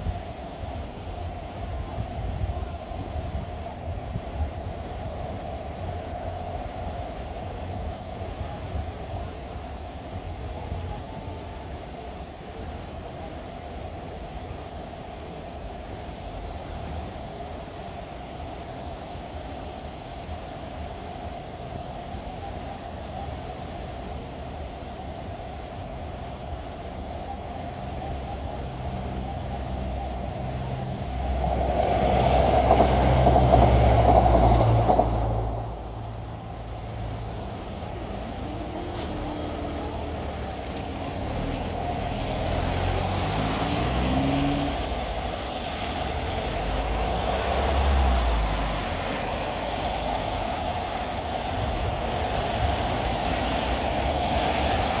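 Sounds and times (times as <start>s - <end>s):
vehicle passing by: 30.0s - 55.0s
tyre hiss on wet road: 30.5s - 55.0s
cars pulling away: 31.2s - 55.0s.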